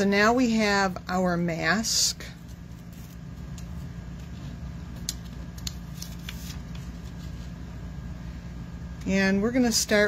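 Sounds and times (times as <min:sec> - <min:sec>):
steady low hum: 0:00.0 - 0:10.0
paper rustles and taps: 0:05.0 - 0:07.3.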